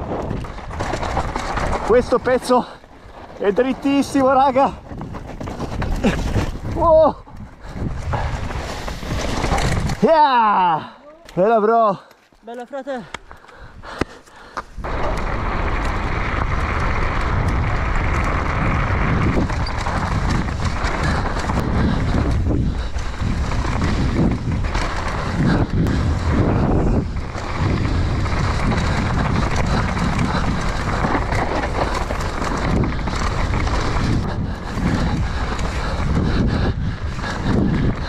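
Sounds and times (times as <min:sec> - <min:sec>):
mountain bike rumbling on dirt trail: 0:00.0 - 0:10.7, 0:13.3 - 0:38.0
wind on camera microphone: 0:03.8 - 0:10.1, 0:14.7 - 0:38.0.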